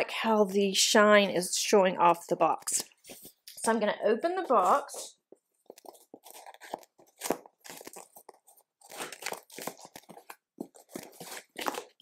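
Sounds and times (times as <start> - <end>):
cardboard and paper rustling: 4.4 - 12.0.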